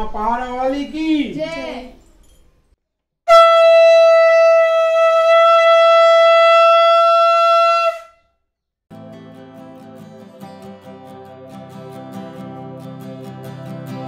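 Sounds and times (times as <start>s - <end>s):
conch shell blown: 3.3s - 8.3s.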